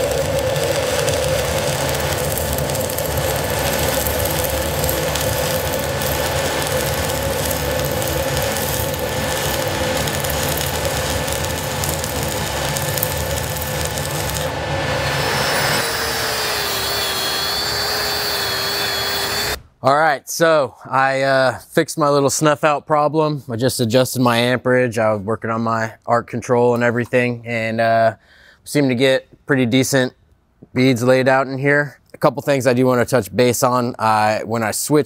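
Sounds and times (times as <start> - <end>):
angle grinder wire wheel whine: 0.0 - 19.6
welding arc crackling: 0.0 - 19.6.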